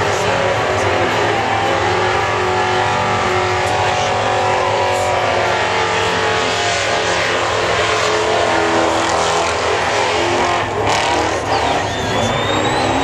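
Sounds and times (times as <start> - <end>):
car engine revving high: 0.0 - 13.0
thin whistle-like tone: 11.5 - 13.0.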